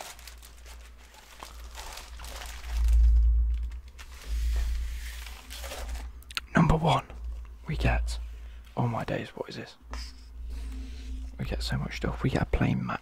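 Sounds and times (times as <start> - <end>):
plastic wrapping crinkling: 0.0 - 6.5
deep low handling rumbles: 0.6 - 9.1.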